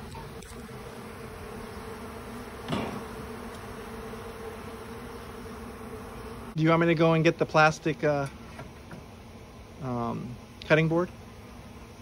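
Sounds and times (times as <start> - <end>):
bees humming in a swarm: 0.0 - 12.0
short thump: 2.6 - 3.1.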